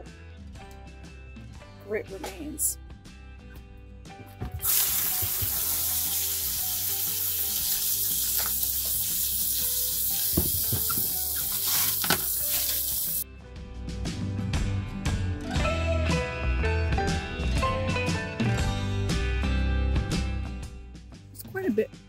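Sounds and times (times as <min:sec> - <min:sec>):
hose nozzle spraying water: 0:04.6 - 0:13.2.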